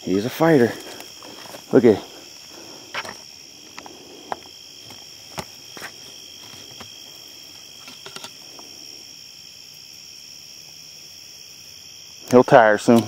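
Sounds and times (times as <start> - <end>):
chorus of night insects: 0.0 - 13.0.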